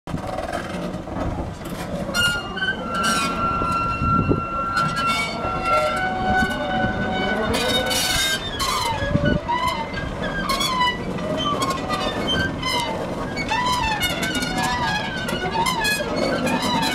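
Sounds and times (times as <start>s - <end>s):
train rumbling and knocking on rails: 0.1s - 16.9s
steam locomotive whistle: 2.1s - 10.0s.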